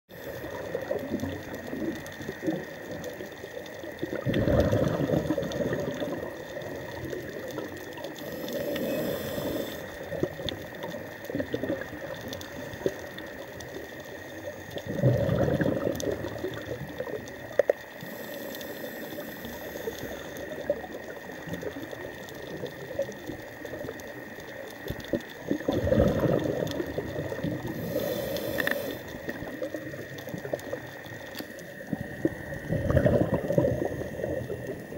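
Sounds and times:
regulator inhale hiss: 0:00.1 - 0:01.0, 0:08.0 - 0:11.0, 0:17.9 - 0:20.8, 0:27.6 - 0:29.9
exhaled bubbles surging: 0:00.1 - 0:08.2, 0:10.0 - 0:13.4, 0:14.7 - 0:17.6, 0:24.9 - 0:34.9
reef crackling and ticking: 0:00.1 - 0:34.9.

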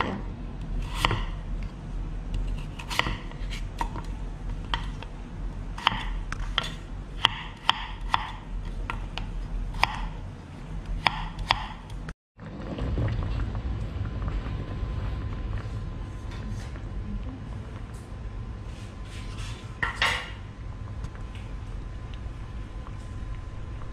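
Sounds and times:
steady low hum: 0:00.0 - 0:23.9
knife chopping on wooden board: 0:05.8 - 0:10.1.

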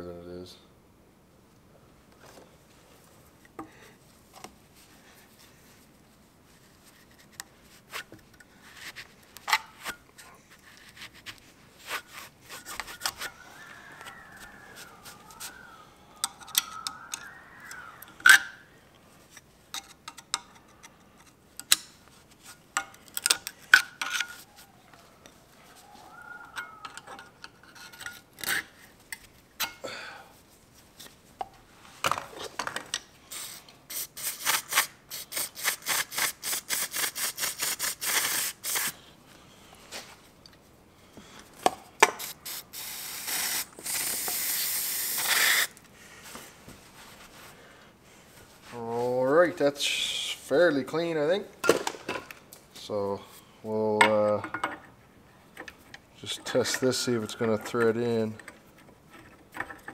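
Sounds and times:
wavering squeak: 0:13.1 - 0:18.7
aerosol spray hissing bursts: 0:33.3 - 0:39.0, 0:42.2 - 0:45.7.

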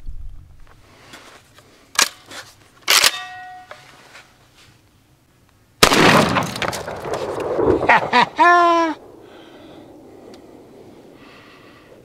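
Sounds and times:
shotgun metallic click: 0:05.8 - 0:07.7.

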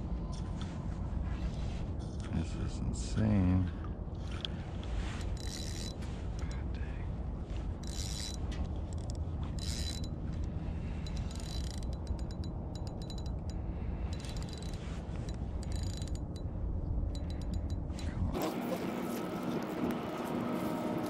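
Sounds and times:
fishing reel clicking and whirring: 0:05.2 - 0:06.6, 0:07.8 - 0:16.4, 0:17.1 - 0:17.8.

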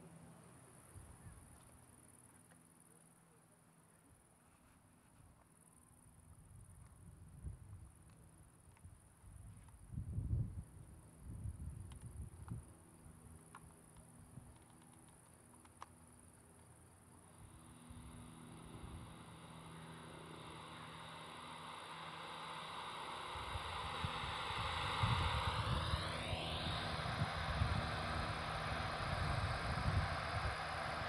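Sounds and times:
noisy electronic drone: 0:17.2 - 0:31.0.

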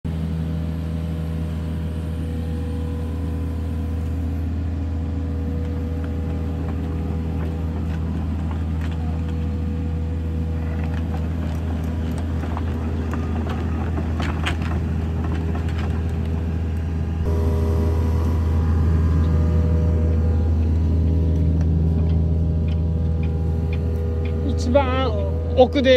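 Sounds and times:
excavator diesel engine running: 0:00.0 - 0:25.9
steady higher tone: 0:00.1 - 0:13.8, 0:16.4 - 0:25.9.

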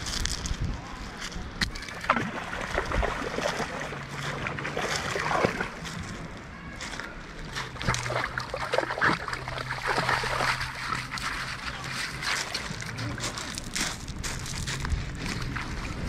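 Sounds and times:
dog splashing through water: 0:01.8 - 0:05.9, 0:07.7 - 0:13.4.

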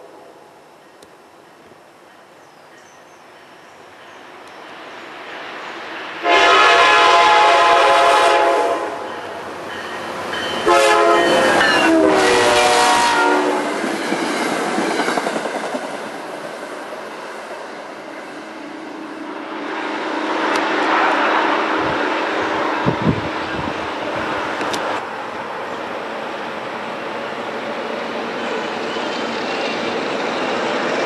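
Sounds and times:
train wheels rumbling on rails: 0:01.4 - 0:31.0
train air horn blasts: 0:06.2 - 0:09.4, 0:10.5 - 0:13.7, 0:20.4 - 0:23.1.

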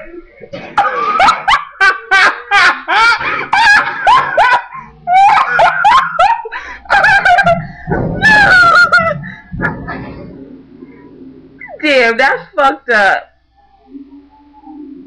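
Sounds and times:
person laughing loudly: 0:00.8 - 0:10.2.

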